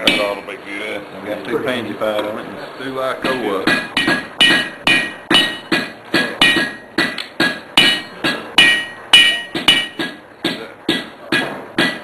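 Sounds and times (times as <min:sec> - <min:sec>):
hammer striking iron on anvil: 0:00.0 - 0:00.4, 0:03.2 - 0:12.0.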